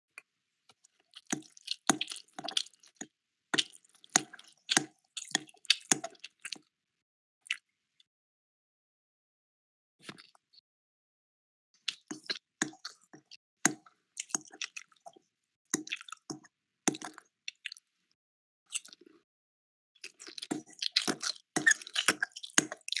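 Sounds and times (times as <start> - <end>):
person chewing food: 0.8 - 6.7, 11.8 - 17.9, 20.0 - 23.0.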